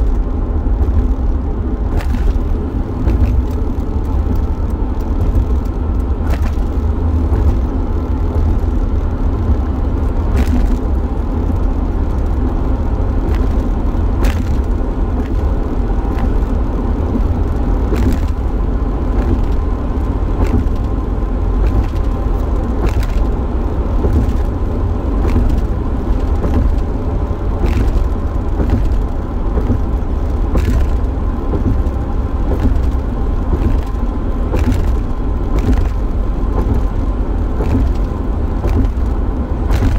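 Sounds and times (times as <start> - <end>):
van engine and road rumble: 0.0 - 39.9
sharp ticks or knocks: 37.6 - 39.1.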